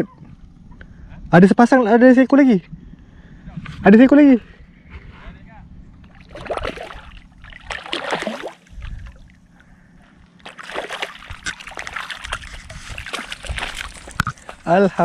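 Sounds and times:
fish splashing at surface: 6.2 - 9.2, 10.4 - 14.5.

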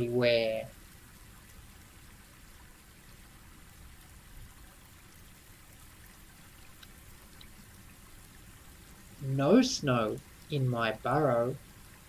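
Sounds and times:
low hum with hiss: 0.0 - 12.0
faint clicks: 6.6 - 7.8.

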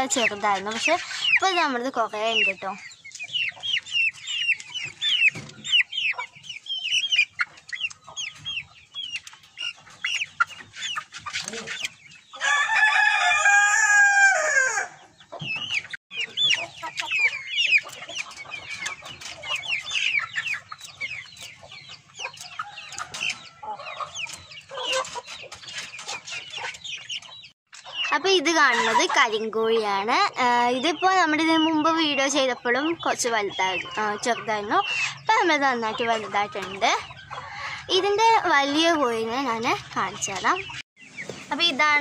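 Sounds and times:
chickens cheeping and clucking: 0.0 - 42.0
rooster crowing: 12.4 - 15.0.

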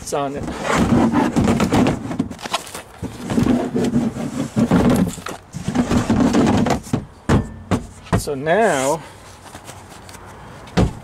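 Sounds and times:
floorboard scraping and knocking: 0.4 - 2.4, 3.0 - 8.3.

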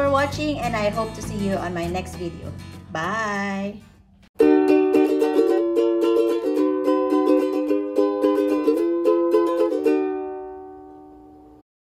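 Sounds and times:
plucked-string tune: 4.4 - 11.6.

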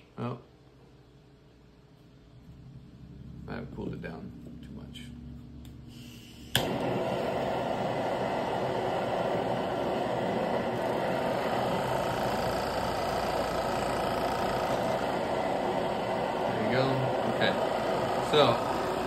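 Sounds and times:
blowtorch igniter click: 5.6 - 19.0
blowtorch flame rushing: 5.9 - 19.0.

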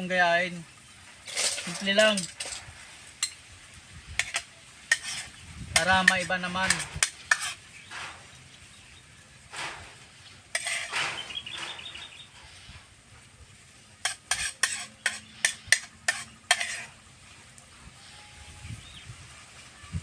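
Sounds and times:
fork scraping plate and shells: 1.2 - 3.4, 4.2 - 8.2, 9.5 - 11.7, 14.0 - 17.0.

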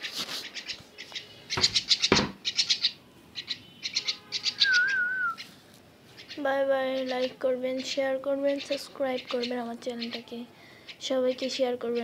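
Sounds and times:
rustling: 0.0 - 1.9
bird chick chirping: 0.4 - 11.0
warbling whistle: 4.5 - 5.4.

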